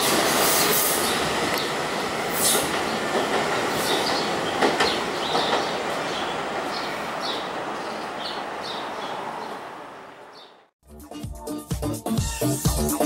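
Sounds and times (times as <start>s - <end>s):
train wheels clicking over rails: 0.0s - 6.8s.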